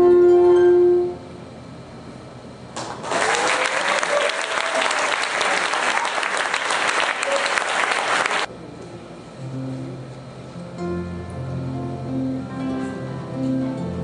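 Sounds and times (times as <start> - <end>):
audience applauding: 2.8 - 8.5.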